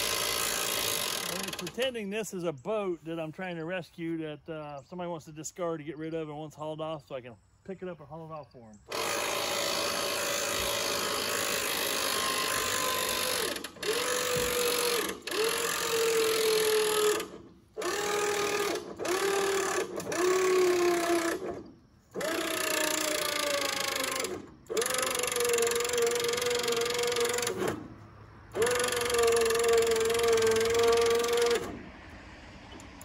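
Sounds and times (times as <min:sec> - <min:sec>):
electric winch motor whining: 0:00.0 - 0:01.8, 0:08.9 - 0:33.0.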